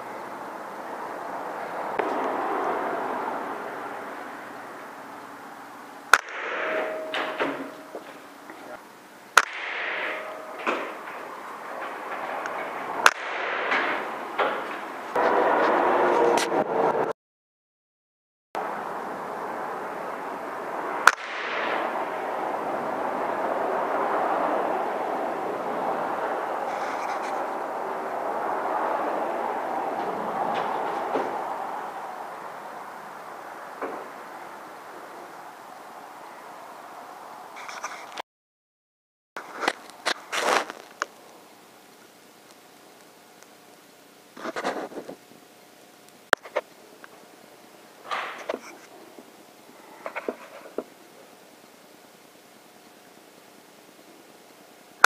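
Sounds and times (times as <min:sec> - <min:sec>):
noisy background hum: 0:00.0 - 0:17.1, 0:18.6 - 0:38.2, 0:39.4 - 0:55.0
steady background noise: 0:00.0 - 0:17.1, 0:18.6 - 0:38.2, 0:39.4 - 0:55.0
air rifle firing: 0:06.1 - 0:07.8, 0:09.4 - 0:11.1, 0:13.0 - 0:14.6, 0:21.1 - 0:21.9.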